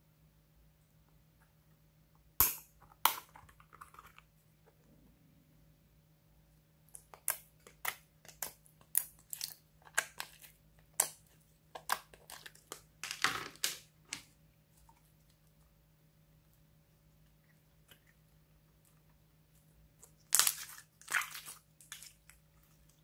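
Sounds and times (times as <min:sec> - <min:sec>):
slime clicking and crackling: 0:06.9 - 0:12.9, 0:20.0 - 0:23.0.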